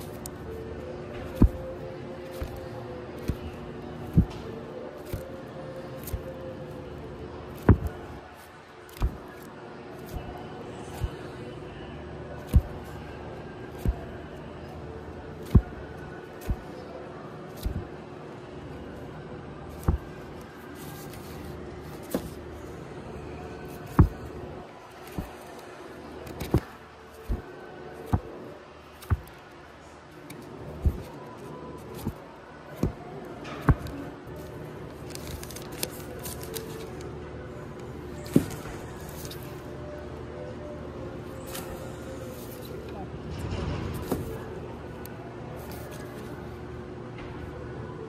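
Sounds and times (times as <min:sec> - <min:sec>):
record sleeves slapping together: 0:01.3 - 0:01.6, 0:05.0 - 0:05.3, 0:06.0 - 0:06.3, 0:07.6 - 0:08.0, 0:08.9 - 0:10.3, 0:13.8 - 0:14.1, 0:15.4 - 0:15.8, 0:16.4 - 0:16.7, 0:17.5 - 0:17.9, 0:19.8 - 0:20.1, 0:20.8 - 0:22.4, 0:23.7 - 0:24.2, 0:25.0 - 0:25.4, 0:26.3 - 0:27.5, 0:29.0 - 0:29.4, 0:30.3 - 0:31.2, 0:31.8 - 0:32.2, 0:32.8 - 0:33.0.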